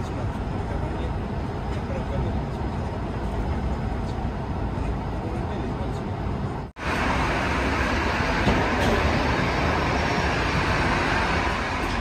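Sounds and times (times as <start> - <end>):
airliner cabin hum: 0.0 - 12.0
airport ramp machinery rushing: 6.8 - 12.0.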